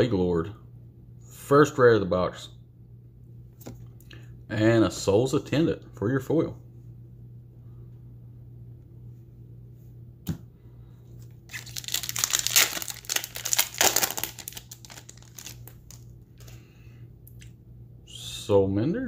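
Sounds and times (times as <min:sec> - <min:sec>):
low steady hum: 0:00.0 - 0:19.0
small clicks of card handling: 0:03.6 - 0:04.2
foil wrapper tearing and crinkling: 0:11.5 - 0:16.5.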